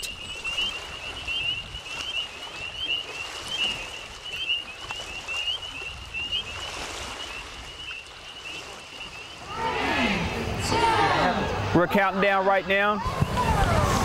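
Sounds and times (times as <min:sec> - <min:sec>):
high chirps of night creatures: 0:00.0 - 0:10.1.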